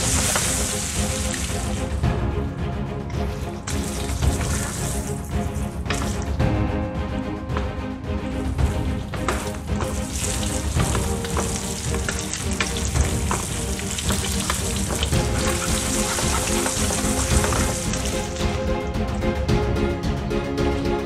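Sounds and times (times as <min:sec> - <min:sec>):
meat sizzling in a skillet: 0:00.0 - 0:01.9, 0:09.3 - 0:18.6.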